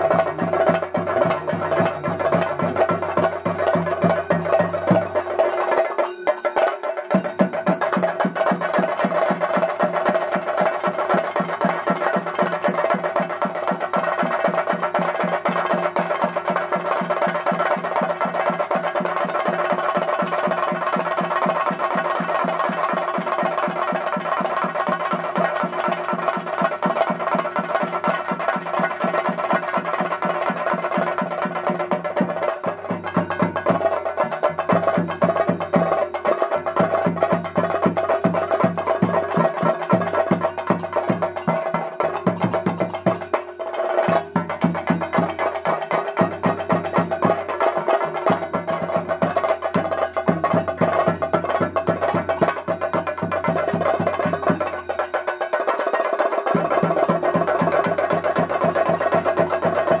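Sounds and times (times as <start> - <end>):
fast dense drumming: 0.0 - 60.0
metallic ringing percussion: 0.0 - 60.0.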